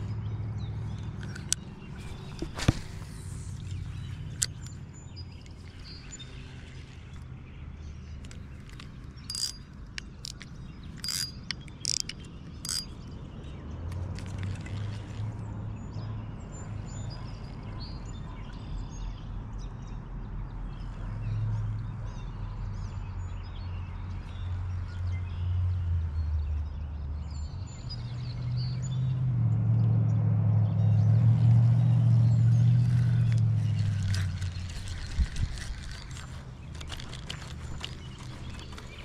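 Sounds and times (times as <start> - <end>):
fishing reel clicks and rattles: 0.9 - 7.2, 8.2 - 13.2, 32.8 - 39.0.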